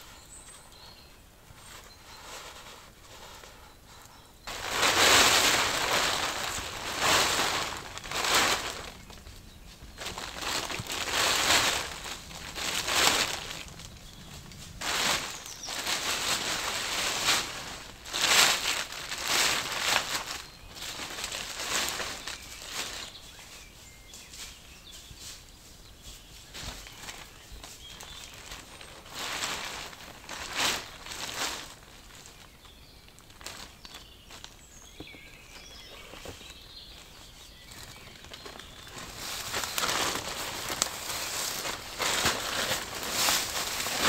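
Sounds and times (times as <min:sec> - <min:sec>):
rustling bursts: 0:04.5 - 0:09.2, 0:09.8 - 0:23.2, 0:26.3 - 0:32.4, 0:38.2 - 0:44.0.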